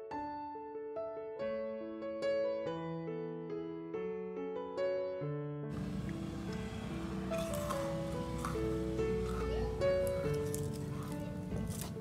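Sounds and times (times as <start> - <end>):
melody of held notes: 5.7 - 11.8.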